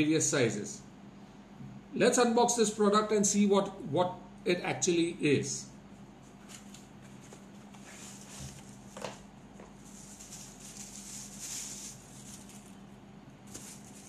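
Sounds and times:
faint steady hum: 0.0s - 14.0s
packaging rustling: 6.5s - 14.0s.

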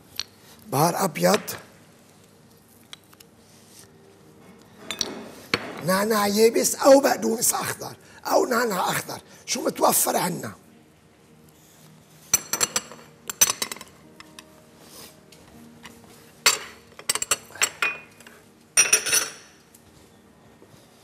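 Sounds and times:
kitchenware clattering: 12.3s - 14.0s, 16.4s - 19.6s.

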